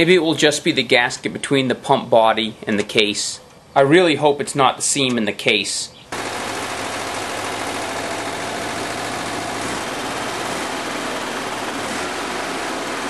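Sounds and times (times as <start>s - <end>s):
air-cooled engine running: 6.1s - 13.0s.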